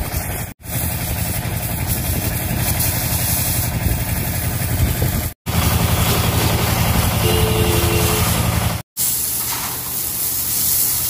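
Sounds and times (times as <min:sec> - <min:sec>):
pressure washer pump running: 0:00.1 - 0:11.0
water jet hissing: 0:05.7 - 0:11.0.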